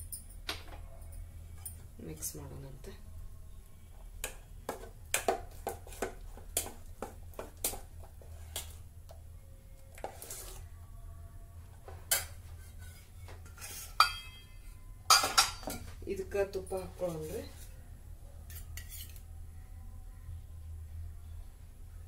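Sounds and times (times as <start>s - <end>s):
spoon scraping metal pot: 9.9s - 10.7s, 12.1s - 14.4s, 18.5s - 19.2s.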